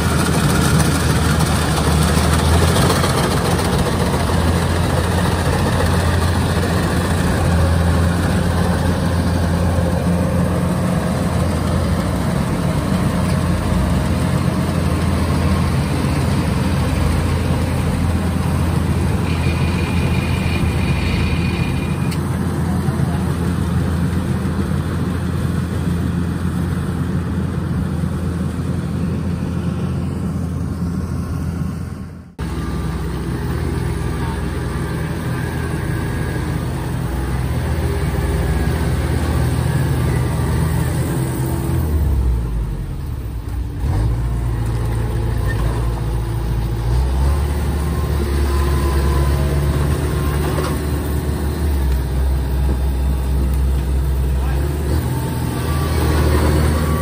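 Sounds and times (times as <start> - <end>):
combine harvester diesel engine: 0.0 - 57.0.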